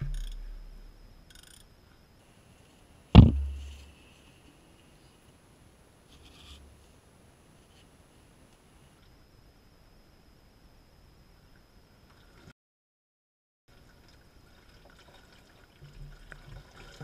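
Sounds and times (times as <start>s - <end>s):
faint clunk: 3.2s - 3.9s.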